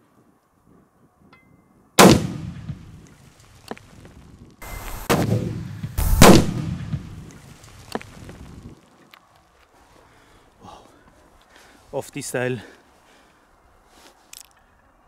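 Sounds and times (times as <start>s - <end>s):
firecracker bang: 2.0s - 3.0s, 4.6s - 7.4s
short cracks: 5.9s - 9.7s, 14.2s - 14.7s.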